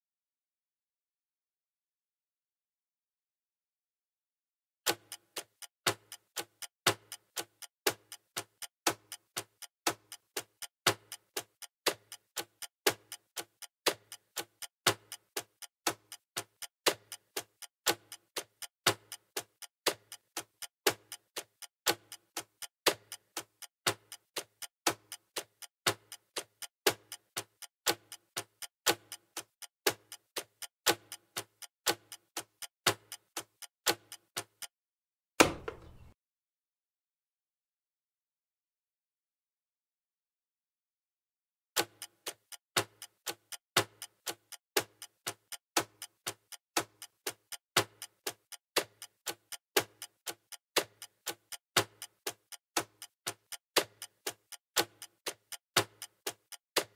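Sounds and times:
clock ticking: 4.9s - 34.7s, 41.8s - 56.9s.

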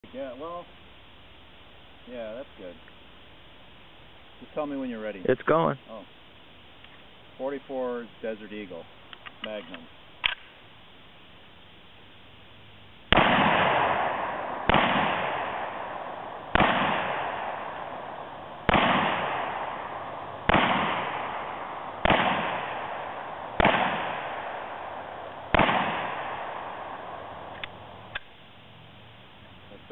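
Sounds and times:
pistol shots with echo: 13.1s - 28.2s.

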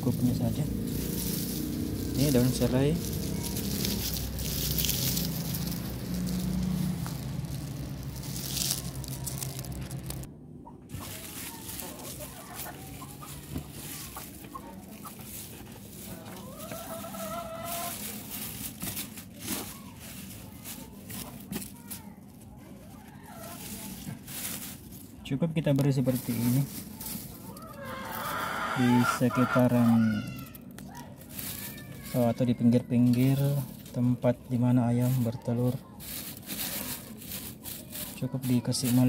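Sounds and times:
leaves rustling and crackling: 0.0s - 10.3s, 10.9s - 39.0s
hen clucking: 0.2s - 18.5s, 22.8s - 24.1s, 27.4s - 30.5s.

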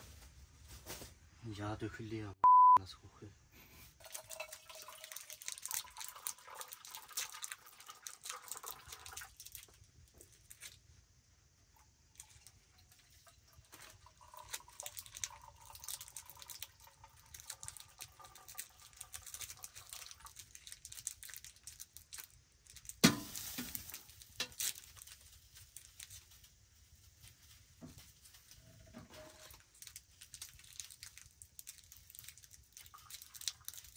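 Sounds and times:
liquid trickling into metal cup: 4.0s - 9.7s, 12.1s - 22.3s, 29.2s - 33.9s.

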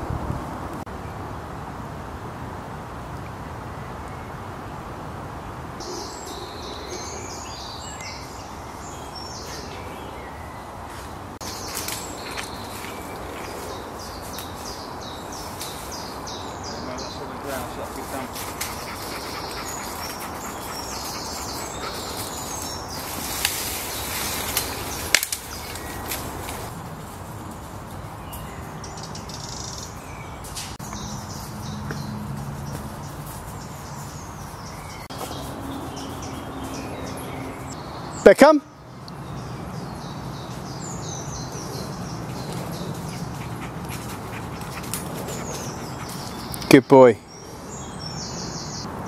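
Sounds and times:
birds chirping: 5.3s - 49.0s
dog panting: 17.6s - 22.7s, 42.4s - 46.6s.

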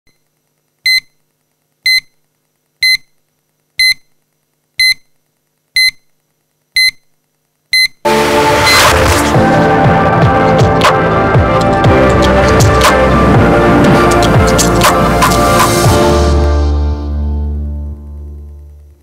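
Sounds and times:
short electronic beeps: 6.8s - 7.1s
loud music: 8.1s - 18.0s.

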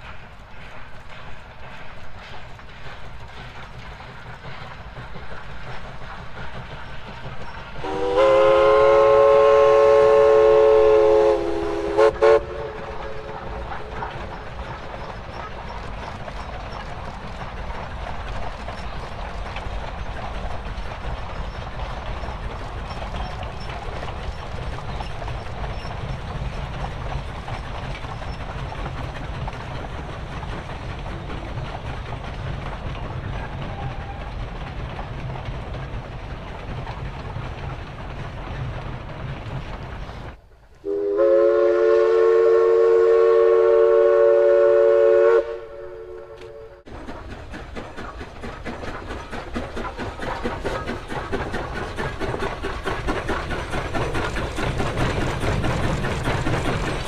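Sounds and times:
steam train rumble: 0.0s - 57.0s
steam whistle blast: 7.8s - 13.2s, 40.8s - 46.8s.

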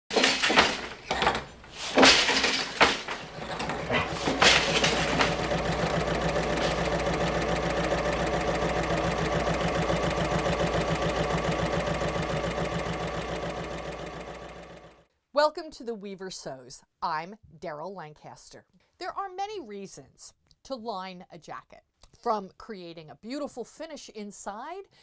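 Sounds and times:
loom beater and shuttle knocks: 0.1s - 14.8s
sewing machine stitching: 0.1s - 15.0s.

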